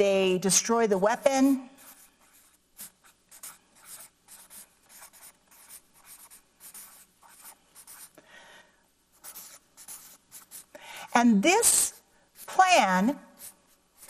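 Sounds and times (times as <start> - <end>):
marker writing on paper: 1.0 - 8.2, 9.1 - 10.7, 11.7 - 14.0.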